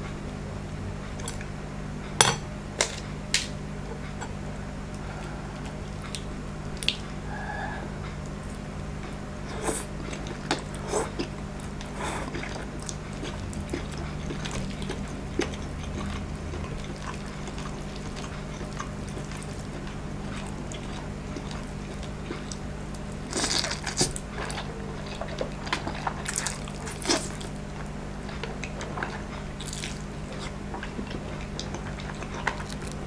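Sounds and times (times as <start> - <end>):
chewing noodles: 9.4 - 33.0.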